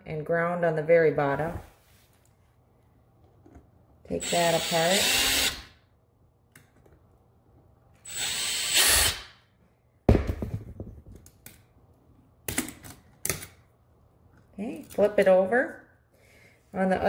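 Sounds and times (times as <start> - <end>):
cordless drill whining: 4.2 - 5.7, 8.0 - 9.3.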